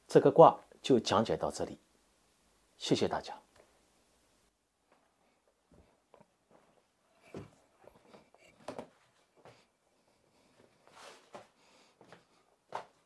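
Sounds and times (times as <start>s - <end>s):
faint knocks and rustles: 4.8s - 13.0s.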